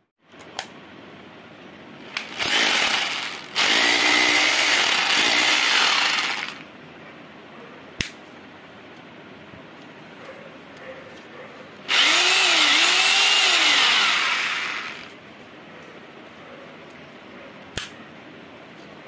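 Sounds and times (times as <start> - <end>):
hammer drill running: 2.1 - 6.6, 11.9 - 15.2.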